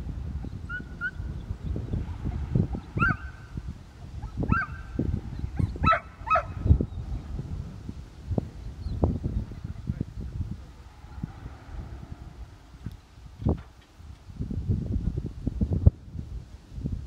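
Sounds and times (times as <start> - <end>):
wind buffeting microphone: 0.0 - 17.0
dog yelping barks: 3.0 - 3.4, 4.2 - 4.9, 5.5 - 6.6.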